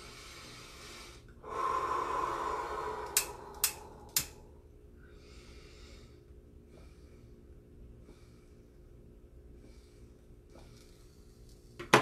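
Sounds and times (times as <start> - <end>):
long breathy blow: 0.0 - 6.1
sharp clicks: 3.1 - 4.4.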